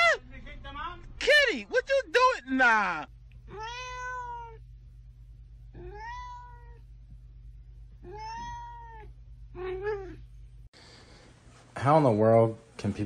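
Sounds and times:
cat meowing: 0:03.5 - 0:04.7, 0:05.7 - 0:06.9, 0:08.0 - 0:10.2.

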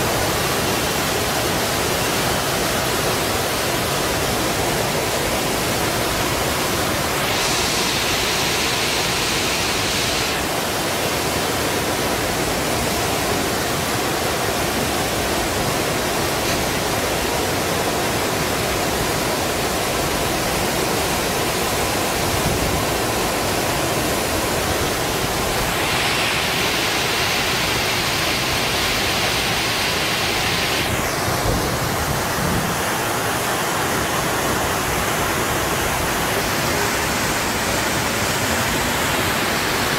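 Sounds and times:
floodwater rushing down a street: 0:00.0 - 0:39.9
bright hiss: 0:06.7 - 0:10.9, 0:25.0 - 0:31.8.

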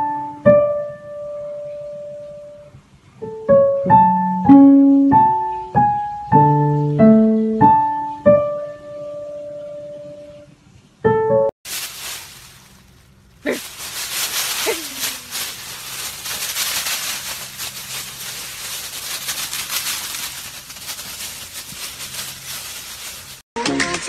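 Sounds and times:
dry leaves crackling and rustling: 0:11.6 - 0:23.8
dog's falling cry: 0:13.4 - 0:15.6.

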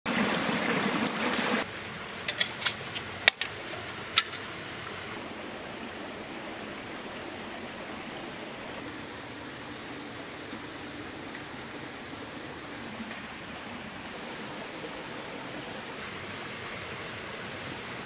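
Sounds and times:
rushing water: 0:00.0 - 0:18.0.

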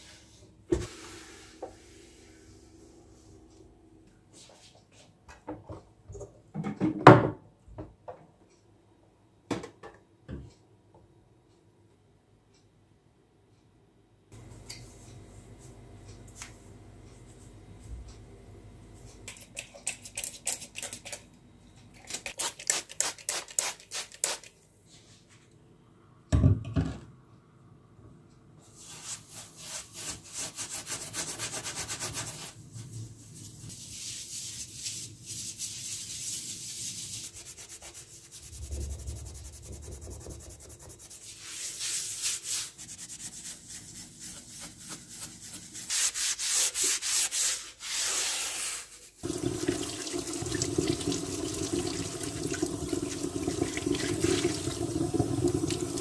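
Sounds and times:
sponge scrubbing stovetop: 0:28.7 - 0:56.0.

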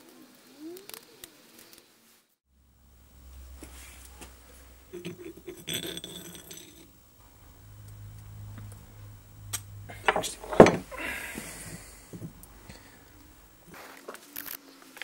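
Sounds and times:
glass and wood pieces clinking: 0:03.0 - 0:13.7
knocks on wooden bench: 0:09.5 - 0:11.0.

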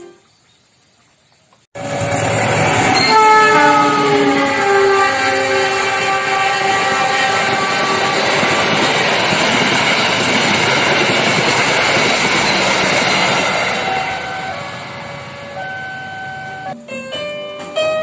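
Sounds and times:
train wheels rushing on rails: 0:01.8 - 0:16.7
keyboard music with held notes: 0:15.6 - 0:18.0.

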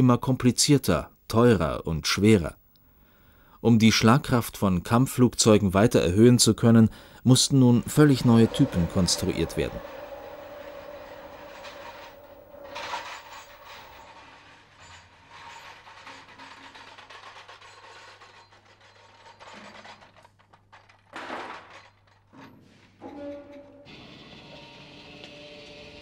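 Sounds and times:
metal scrape: 0:07.3 - 0:20.2, 0:21.7 - 0:24.2
metal clanking: 0:07.6 - 0:23.9.

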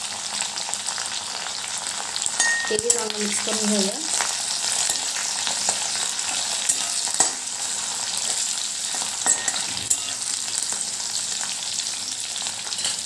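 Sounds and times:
food sizzling in hot oil: 0:00.0 - 0:13.0
metal spatula stirring: 0:02.4 - 0:10.8, 0:12.7 - 0:13.0.

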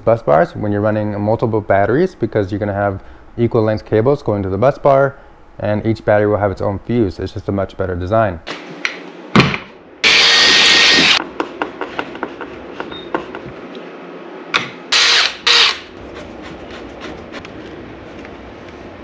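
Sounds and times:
power drill driving screws: 0:10.0 - 0:11.2, 0:14.9 - 0:15.9.

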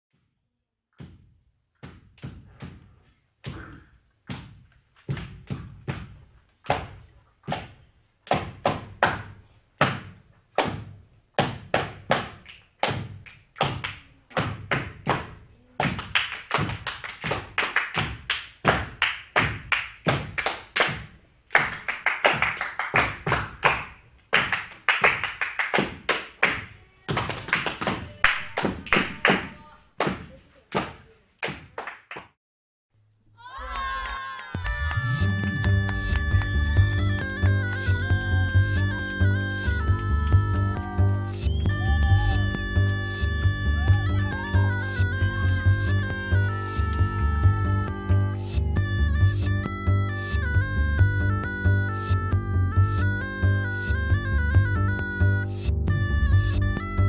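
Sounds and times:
sharp knocks and thuds: 0:01.0 - 0:09.2
clap-like strokes: 0:06.6 - 0:32.4.

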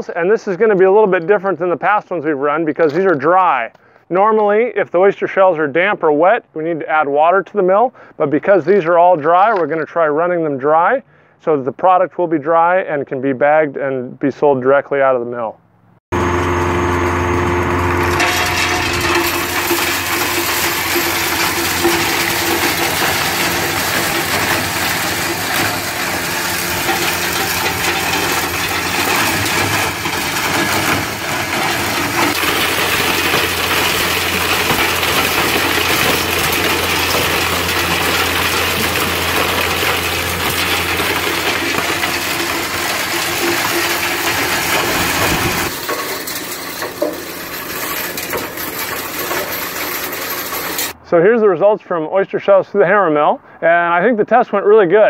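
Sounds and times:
hammer mill humming: 0:16.1 - 0:51.0.

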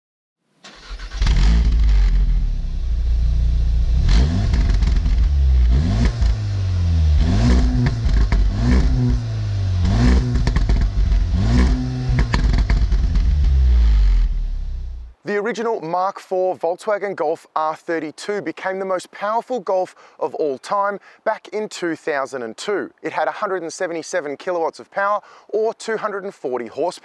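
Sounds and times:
car engine revving: 0:00.7 - 0:15.1
exhaust crackles: 0:00.7 - 0:15.2.

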